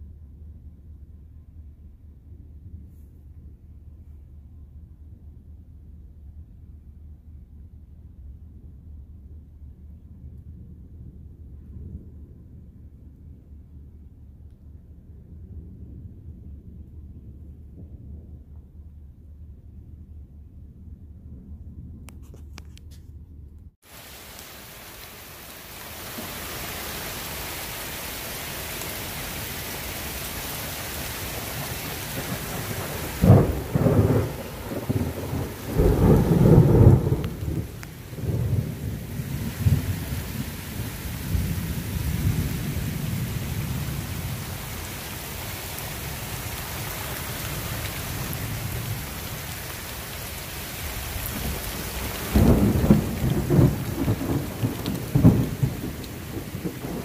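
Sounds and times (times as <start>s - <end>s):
thunder rumbling: 8.5s - 22.3s, 23.8s - 57.0s
heavy rain falling: 23.8s - 57.0s.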